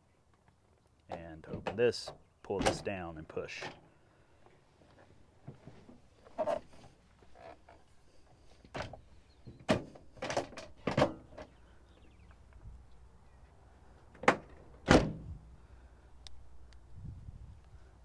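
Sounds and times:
van doors shutting with thuds: 0:08.7 - 0:11.6, 0:14.1 - 0:15.5
van door latch clunks: 0:14.2 - 0:15.3.

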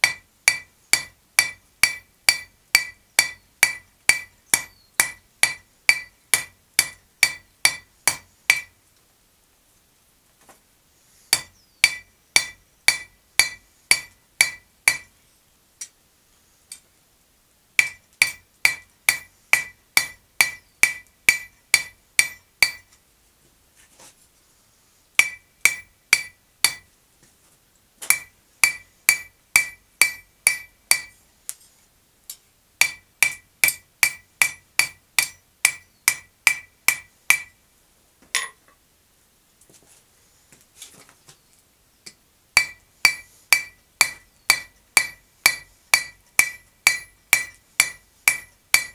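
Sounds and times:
hammer striking steel on anvil: 0:00.0 - 0:08.7, 0:11.3 - 0:15.1, 0:17.8 - 0:22.9, 0:25.2 - 0:26.9, 0:28.1 - 0:31.2, 0:32.8 - 0:37.6, 0:42.6 - 0:48.9.

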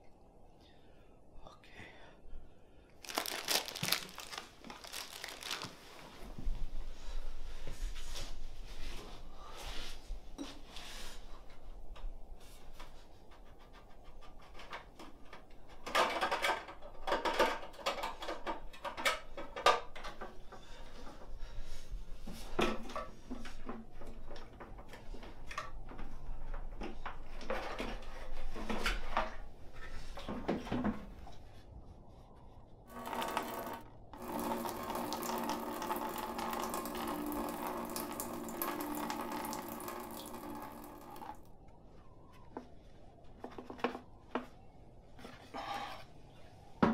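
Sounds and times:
plastic fuel can handled: 0:03.0 - 0:05.8.

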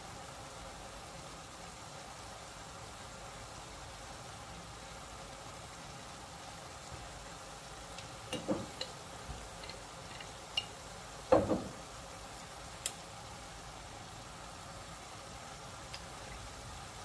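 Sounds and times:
noodles sizzling in a pan: 0:00.0 - 0:17.0
utensils knocking and scraping pan: 0:08.4 - 0:09.0.

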